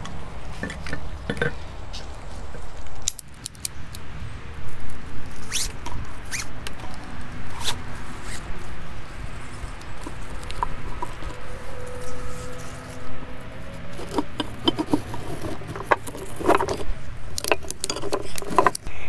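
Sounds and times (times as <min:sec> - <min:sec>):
strap webbing rasping: 0:05.2 - 0:18.9.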